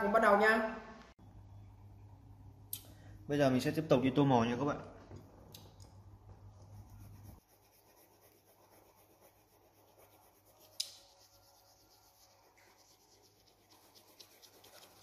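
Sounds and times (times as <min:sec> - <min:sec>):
pencil scratching on paper: 0:06.6 - 0:15.0.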